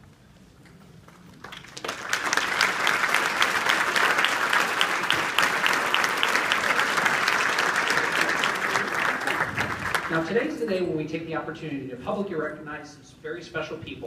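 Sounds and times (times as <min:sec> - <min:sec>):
crowd applauding: 0:01.2 - 0:10.3.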